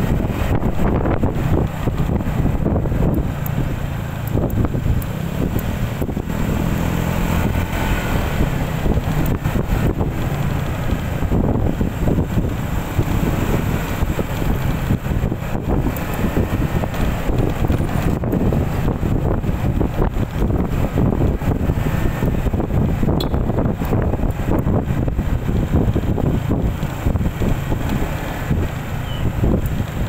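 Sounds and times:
scooter engine humming: 0:00.0 - 0:30.0
wind buffeting microphone: 0:00.0 - 0:30.0.

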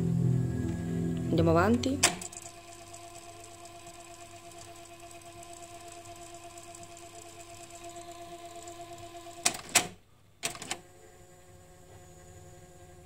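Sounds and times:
steady hum of held tones: 0:00.0 - 0:09.4, 0:10.8 - 0:13.0
sharp mechanical button clicks: 0:02.0 - 0:02.3.

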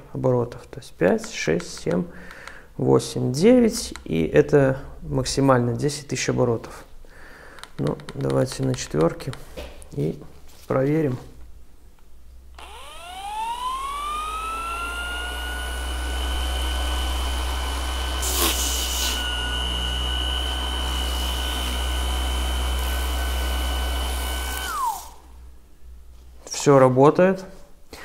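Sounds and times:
orbital sander whine: 0:12.6 - 0:25.4.

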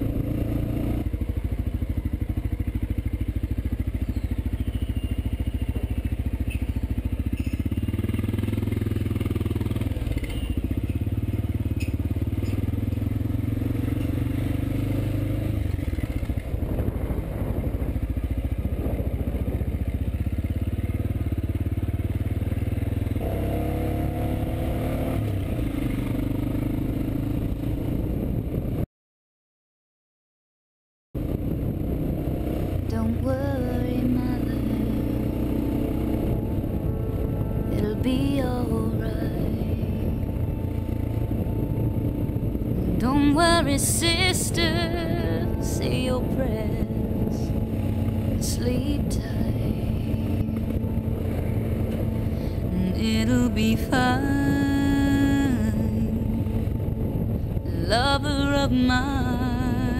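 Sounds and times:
motorcycle engine running: 0:00.0 - 0:28.8, 0:31.2 - 0:59.9.

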